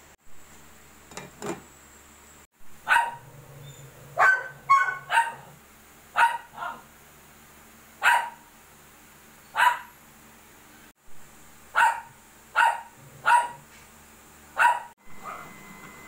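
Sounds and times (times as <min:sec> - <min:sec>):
dog barking: 0:02.8 - 0:03.3, 0:04.1 - 0:06.9, 0:08.0 - 0:08.5, 0:09.5 - 0:10.0, 0:11.7 - 0:13.6, 0:14.6 - 0:15.6.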